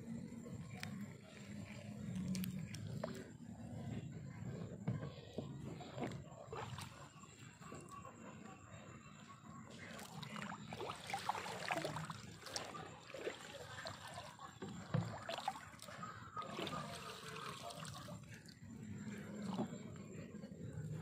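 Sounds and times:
shallow water splashing: 9.7 - 19.9.

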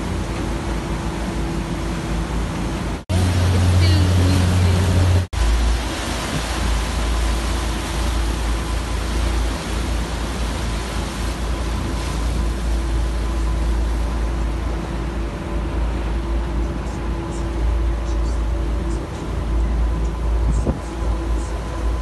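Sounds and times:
boat engine hum: 0.0 - 22.0
water rushing from wake: 0.0 - 22.0
wind buffeting microphone: 18.7 - 22.0.

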